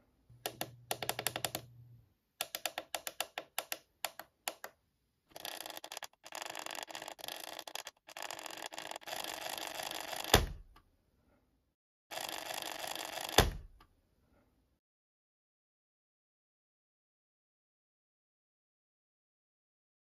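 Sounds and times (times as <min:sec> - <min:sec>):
plastic buttons clicking: 0:00.4 - 0:01.8, 0:02.4 - 0:04.8.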